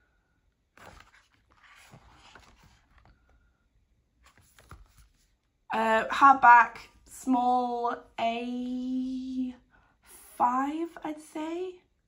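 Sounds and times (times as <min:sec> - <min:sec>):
paper pages being turned: 0:00.7 - 0:03.5, 0:04.2 - 0:05.4.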